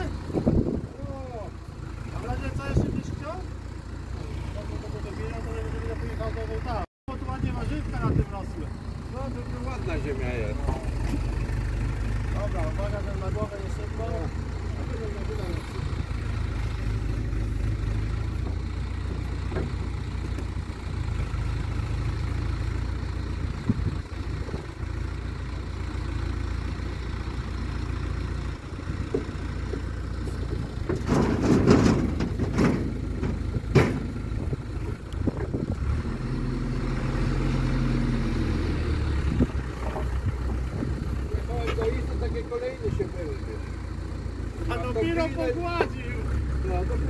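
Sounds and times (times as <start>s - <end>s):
excavator diesel engine running: 0.0s - 47.0s
soil tipped into trailer: 30.8s - 34.3s.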